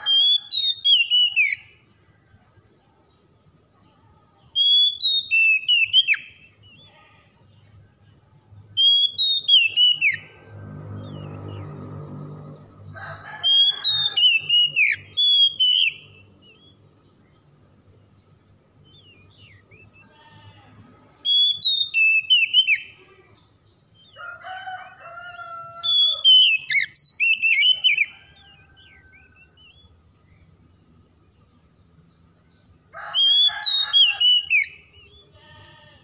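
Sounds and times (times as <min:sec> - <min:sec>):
bird singing whistled phrases: 0:00.1 - 0:01.7, 0:04.6 - 0:06.4, 0:08.8 - 0:10.3, 0:13.9 - 0:16.7, 0:21.2 - 0:22.9, 0:25.9 - 0:28.1.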